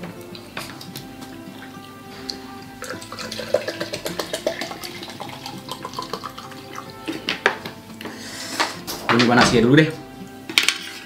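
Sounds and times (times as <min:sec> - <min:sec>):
background music: 0:00.0 - 0:11.0
water glugging from bottle: 0:00.4 - 0:07.3.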